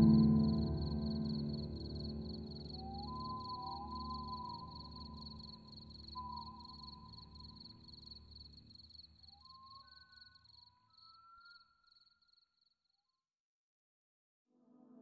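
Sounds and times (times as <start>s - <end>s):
ambient music drone: 0.0s - 7.6s
crickets chirping: 0.0s - 12.7s.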